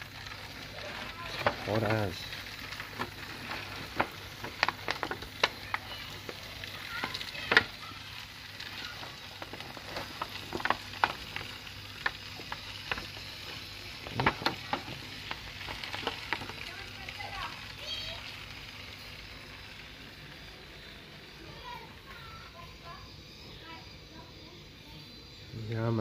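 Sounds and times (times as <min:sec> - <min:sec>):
fat crackling and popping: 0:00.0 - 0:26.0
meat sizzling on a grill: 0:00.0 - 0:26.0.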